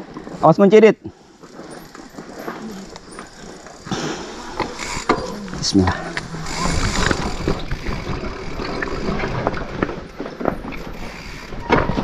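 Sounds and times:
bike clattering over stones: 1.1s - 12.0s
riding noise rush: 2.0s - 12.0s.

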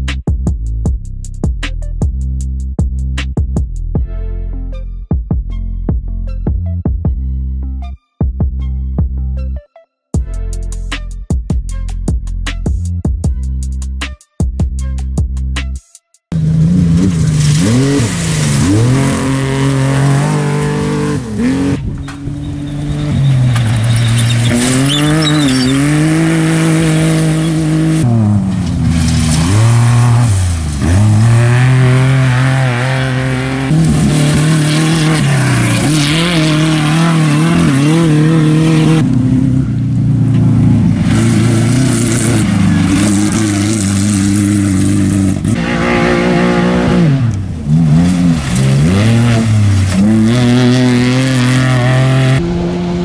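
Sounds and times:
off-road vehicle engines running hard: 16.3s - 53.0s.

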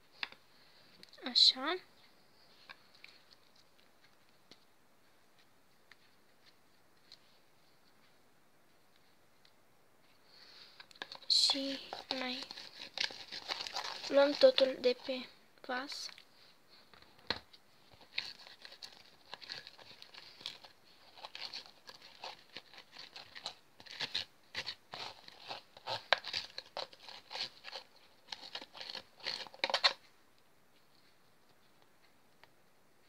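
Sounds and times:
slime kneaded by hand: 10.8s - 16.1s.

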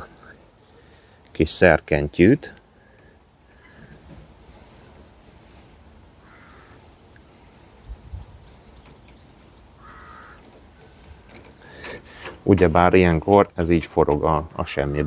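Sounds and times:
harsh bird calls: 2.8s - 11.0s.

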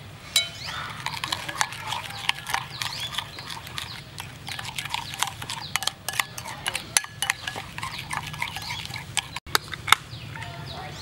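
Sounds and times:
spoon clicking against bowl: 0.4s - 9.4s
spoon scraping ceramic bowl: 0.4s - 9.5s
animal calls: 0.6s - 9.4s.

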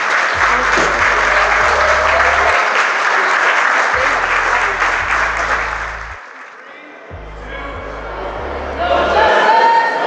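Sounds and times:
crowd applause: 0.0s - 10.0s.

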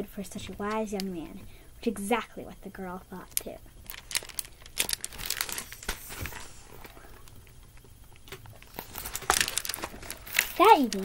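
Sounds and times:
plastic book jacket crinkling: 3.8s - 7.0s, 8.2s - 11.0s
book pages turning: 8.3s - 11.0s.

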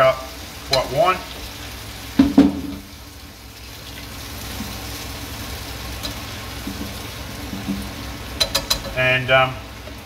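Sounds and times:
prawns sizzling in a pan: 0.0s - 10.0s.

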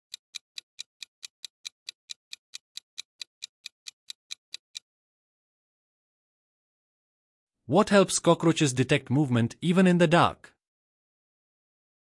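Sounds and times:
fast clock ticking: 0.1s - 4.8s.

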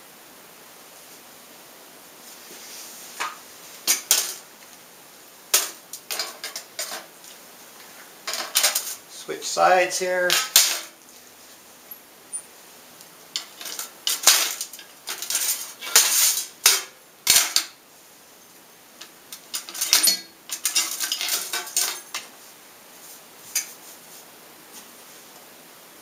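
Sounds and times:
metal tools clinking against tin: 3.9s - 4.4s, 5.6s - 7.1s, 8.3s - 9.0s, 13.4s - 17.7s, 19.0s - 22.3s.

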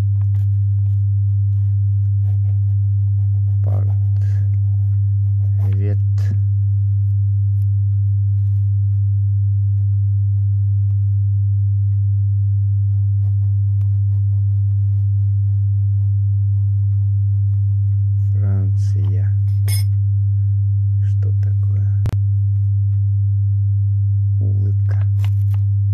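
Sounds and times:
low pure-tone hum: 0.0s - 25.9s
pen scratching on paper: 0.2s - 6.3s, 13.0s - 18.9s.

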